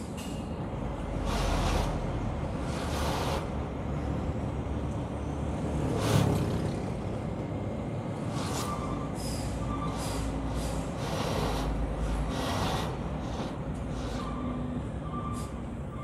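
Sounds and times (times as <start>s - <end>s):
truck engine rumbling: 0.0s - 16.0s
air brake hissing bursts: 8.2s - 14.6s, 15.3s - 15.7s.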